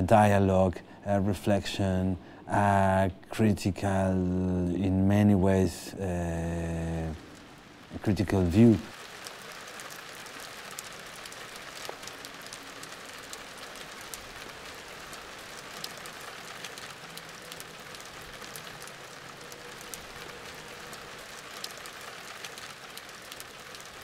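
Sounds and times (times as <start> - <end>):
light rain hissing: 0.1 - 24.0
raindrops ticking: 6.0 - 24.0.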